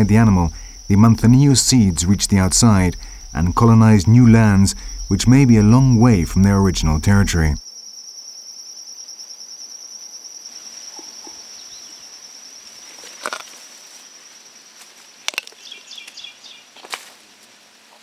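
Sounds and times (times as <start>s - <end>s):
insect trill: 0.0s - 16.8s
tortoise crunching fruit: 13.0s - 13.6s.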